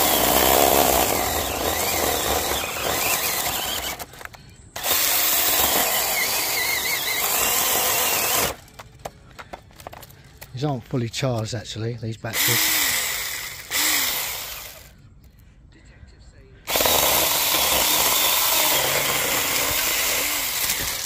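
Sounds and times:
chainsaw cutting wood: 0.0 - 4.2, 4.8 - 8.6, 12.4 - 14.9, 16.7 - 21.0.

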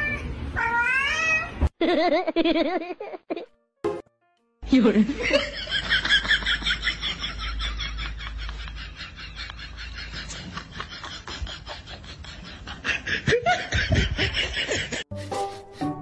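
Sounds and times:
person laughing: 5.2 - 15.9.

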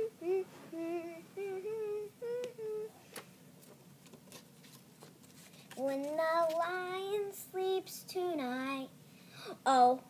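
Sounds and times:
girl humming: 0.0 - 3.0
paper rustling: 3.6 - 6.8.

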